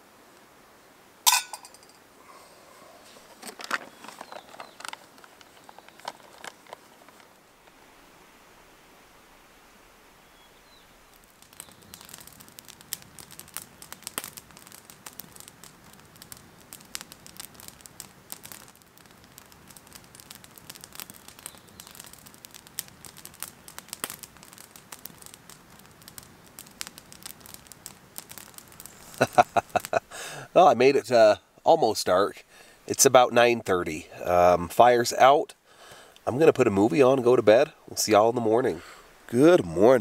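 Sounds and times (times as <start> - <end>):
wood campfire crackling: 0.0 - 40.0
sharp pops of fire: 3.4 - 7.3, 10.6 - 30.5.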